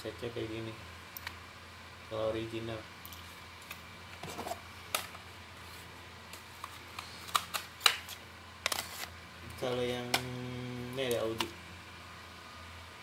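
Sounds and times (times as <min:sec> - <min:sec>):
plastic cassette cases clicking: 0:06.6 - 0:09.1.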